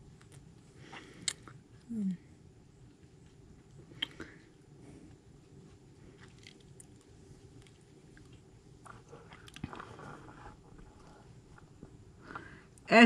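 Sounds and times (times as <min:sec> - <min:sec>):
animals chewing and crunching: 0:04.9 - 0:12.6.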